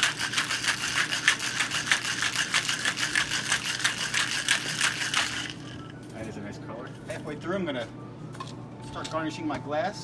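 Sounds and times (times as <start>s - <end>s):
cocktail shaker rattling: 0.0s - 5.9s.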